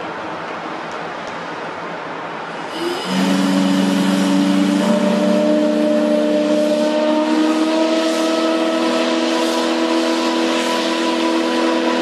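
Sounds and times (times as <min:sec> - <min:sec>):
hiss of escaping steam: 0:02.5 - 0:12.0
steam whistle blowing: 0:02.6 - 0:12.0.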